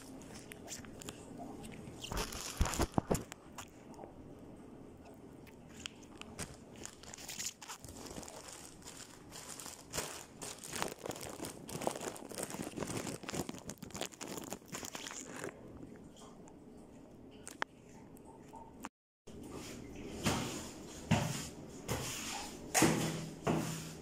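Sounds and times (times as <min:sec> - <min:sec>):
rustling and scraping: 0:00.0 - 0:03.7, 0:05.7 - 0:15.5.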